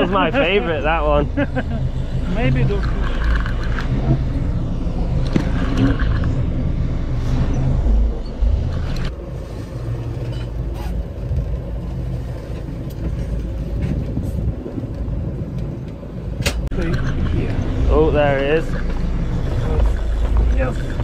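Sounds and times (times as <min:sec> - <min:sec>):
boat engine rumbling: 0:00.0 - 0:21.0.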